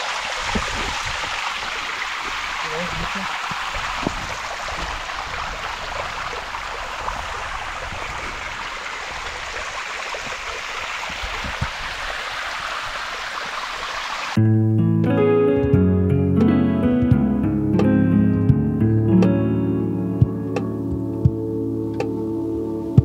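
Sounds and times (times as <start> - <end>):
stream water over rocks: 0.0 - 14.4
guitar music: 14.4 - 23.0.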